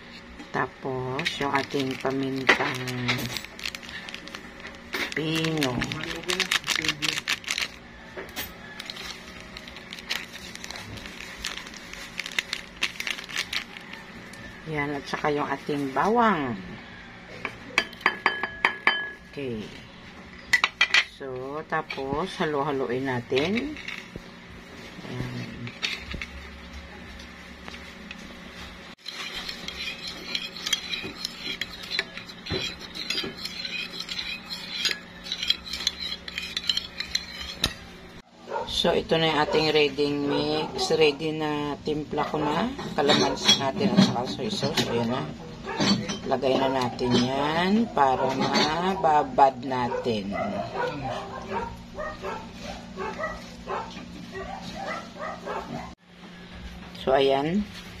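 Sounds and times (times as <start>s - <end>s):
utensils tapping against bowl: 17.4s - 19.2s, 29.0s - 37.9s.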